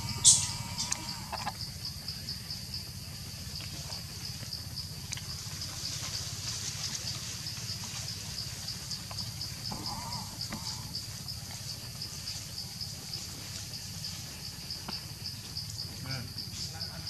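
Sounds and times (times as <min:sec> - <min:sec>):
warbling animal call: 0:00.0 - 0:01.6, 0:09.7 - 0:10.9
insects buzzing: 0:00.0 - 0:17.0.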